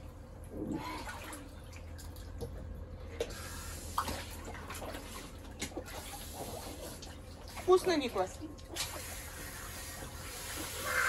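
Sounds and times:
water splashing in paddling pool: 0:03.3 - 0:11.0.

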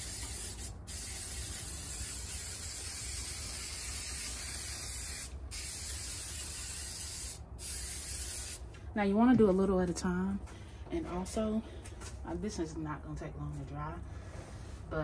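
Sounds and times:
aerosol can spraying: 0:00.0 - 0:08.6.

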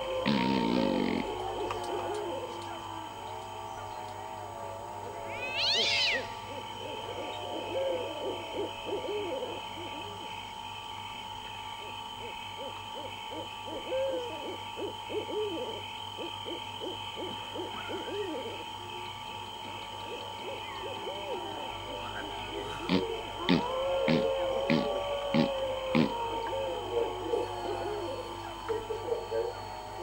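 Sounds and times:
animal calls rising and falling: 0:05.3 - 0:06.3, 0:22.8 - 0:28.2.

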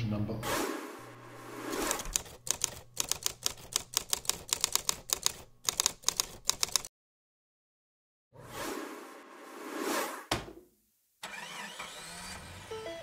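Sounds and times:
typewriter keys clacking: 0:01.8 - 0:06.9.

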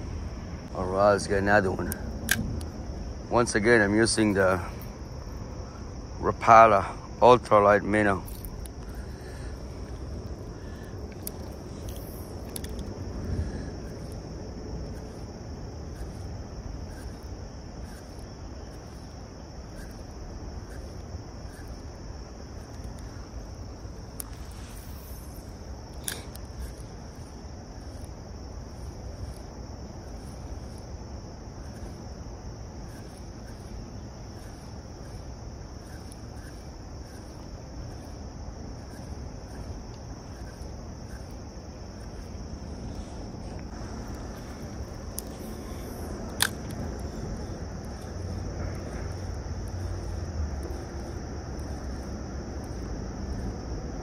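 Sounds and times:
low rushing noise: 0:00.0 - 0:17.8
insect chorus: 0:00.0 - 0:54.0
sharp click: 0:01.8 - 0:02.7, 0:25.9 - 0:26.8, 0:46.3 - 0:47.0.

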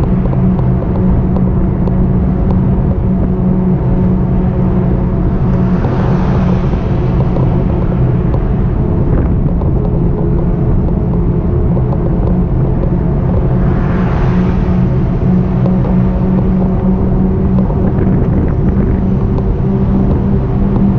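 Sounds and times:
e-bike ride rumble: 0:00.0 - 0:20.9
road vehicles passing: 0:00.0 - 0:20.9.

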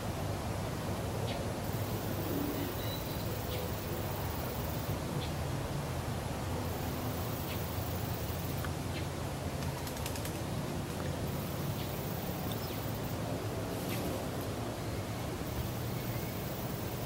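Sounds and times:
low background noise: 0:00.0 - 0:17.0
faint bird chirps: 0:02.2 - 0:03.8.

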